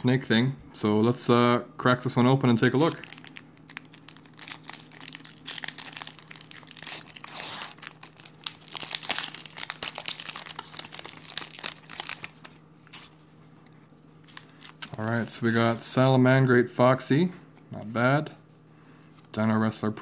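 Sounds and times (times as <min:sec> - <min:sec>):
foil wrapper crinkling and tearing: 0:02.8 - 0:13.2, 0:14.2 - 0:15.4.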